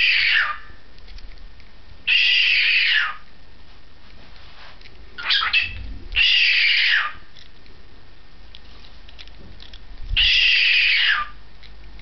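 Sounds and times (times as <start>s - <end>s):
cockatiel harsh calls: 0.0s - 0.8s, 2.1s - 3.3s, 5.2s - 7.4s, 10.2s - 11.4s
rough scattered sounds: 1.0s - 1.8s, 8.5s - 10.4s.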